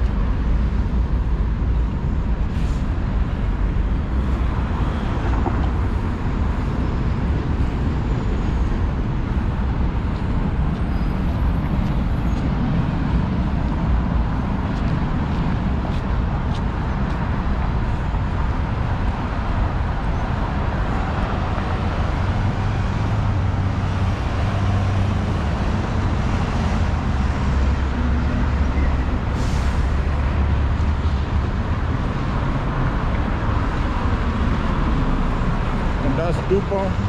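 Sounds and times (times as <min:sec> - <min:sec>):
heavy vehicle low rumble: 0:00.0 - 0:37.0
cars running past: 0:02.6 - 0:37.0.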